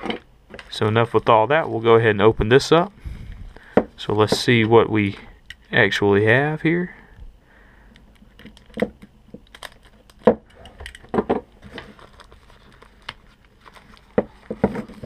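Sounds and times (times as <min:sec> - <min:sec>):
plastic bag crinkling: 0:08.0 - 0:15.0.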